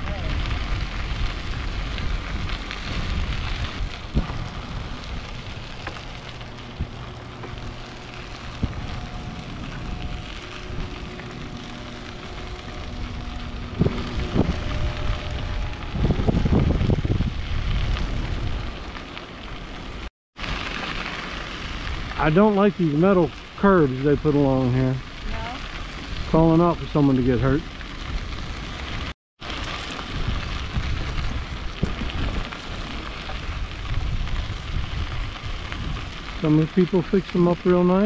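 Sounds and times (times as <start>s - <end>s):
wind buffeting microphone: 0.0s - 19.0s, 30.0s - 36.9s
bicycle tyres rolling on pavement: 0.0s - 38.0s.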